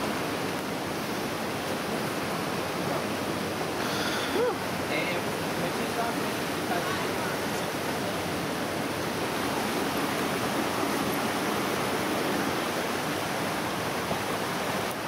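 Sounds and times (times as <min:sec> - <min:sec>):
creek water running: 0:00.0 - 0:15.0.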